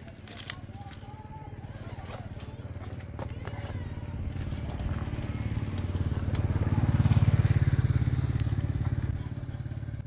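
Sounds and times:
motorbike engine passing: 0.0 - 10.0.

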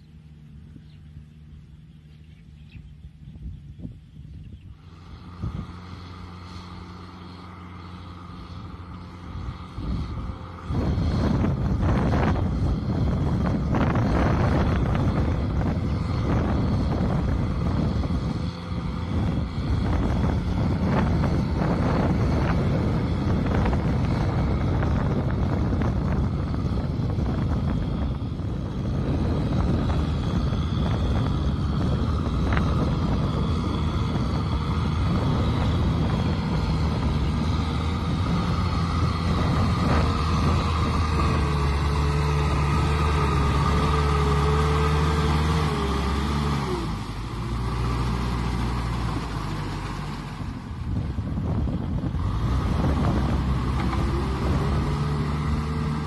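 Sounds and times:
tractor diesel engine under load: 0.0 - 56.0.

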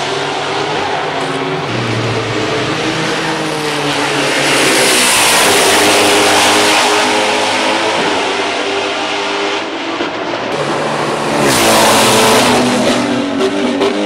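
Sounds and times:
race car engine at full throttle: 0.0 - 14.0.

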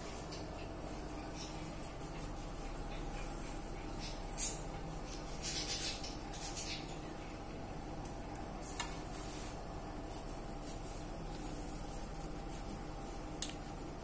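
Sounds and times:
steady low hum: 0.0 - 14.0
hands rustling crumbly mixture: 8.4 - 14.0.

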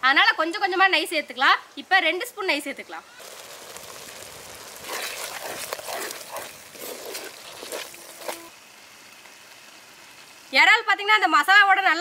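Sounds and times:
wooden spatula scraping clay pot: 3.2 - 8.5.

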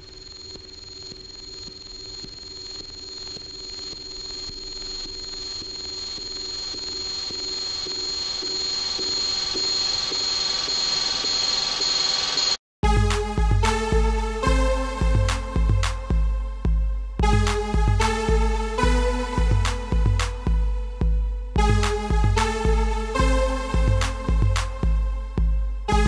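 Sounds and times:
high ringing tone: 0.0 - 12.6.

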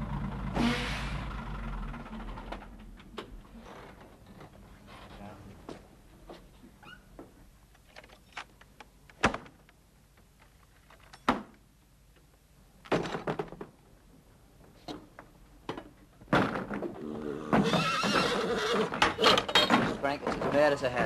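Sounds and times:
knocks and thuds: 15.7 - 17.9.

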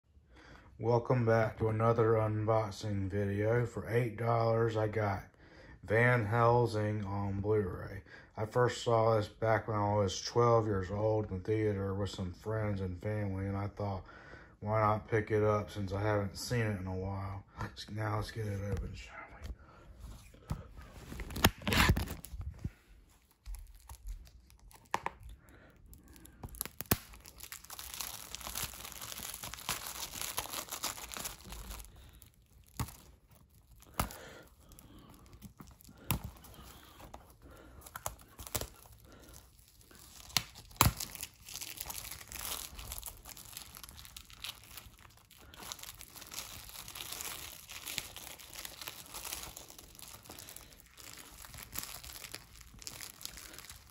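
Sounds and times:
plastic wrap crinkling: 20.8 - 53.9.

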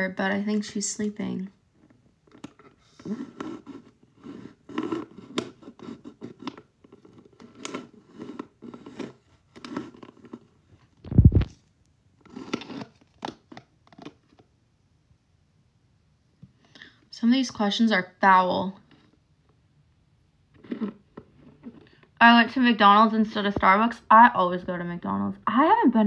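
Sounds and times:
scratchy handling noises: 1.7 - 14.5, 20.5 - 22.1.

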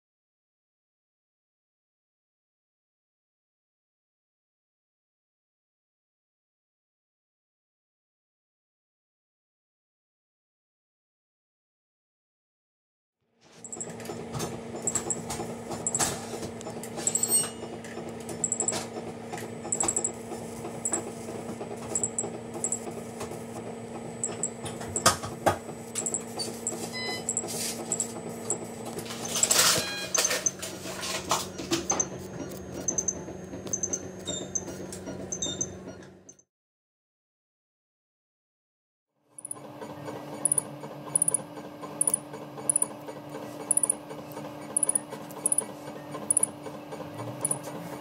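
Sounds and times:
electrical hum: 13.5 - 36.3, 39.4 - 48.0
short high beeps: 21.9 - 22.8, 26.9 - 28.0, 29.7 - 30.4, 41.2 - 41.4, 42.0 - 42.9, 43.7 - 44.0, 44.8 - 45.6.

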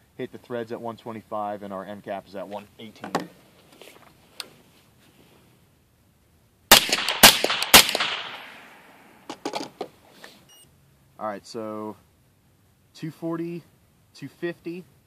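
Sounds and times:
light handling knocks: 3.0 - 4.5
suppressed rifle shots with echo: 6.7 - 9.4.

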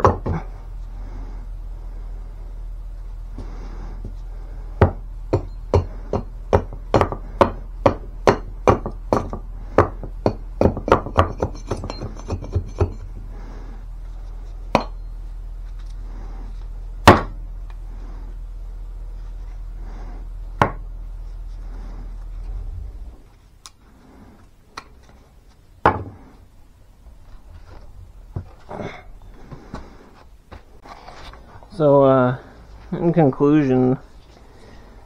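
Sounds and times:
axe chopping hard wood: 5.8 - 11.5, 17.0 - 17.4.

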